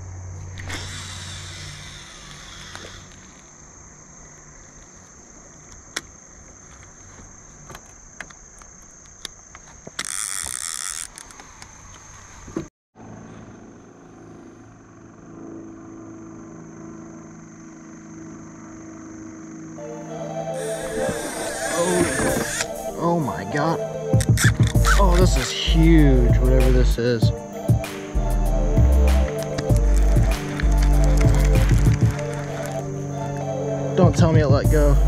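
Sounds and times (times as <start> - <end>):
high insect drone: 0.0 - 35.0
fishing reel spool whirring: 0.4 - 3.5, 10.0 - 11.4, 20.2 - 26.6, 27.3 - 35.0
clicks and knocks of gear: 7.6 - 12.1, 24.2 - 25.2, 29.3 - 32.8.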